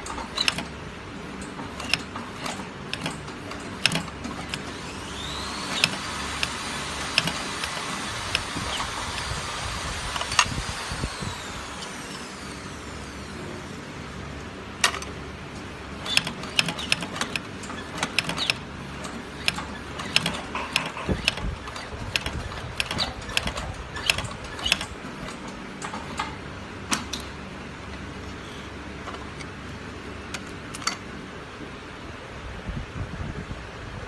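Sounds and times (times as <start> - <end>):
stitching machine needle clacking: 0.0 - 0.8, 1.4 - 9.4, 14.8 - 27.4
machine low hum: 0.0 - 34.0.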